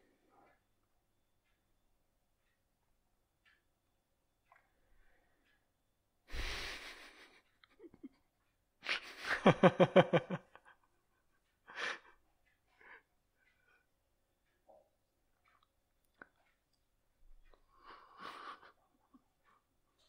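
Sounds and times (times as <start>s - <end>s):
faint breaths: 4.7s - 7.5s, 11.6s - 14.0s, 17.5s - 19.7s
person laughing: 6.3s - 8.2s, 8.8s - 10.8s, 18.1s - 19.2s.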